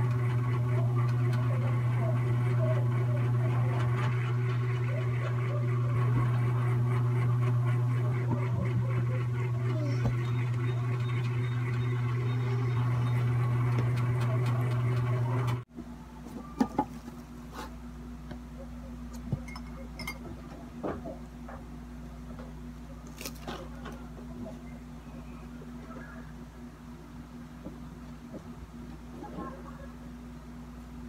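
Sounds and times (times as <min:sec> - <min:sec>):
loud low hum: 0:00.0 - 0:16.6.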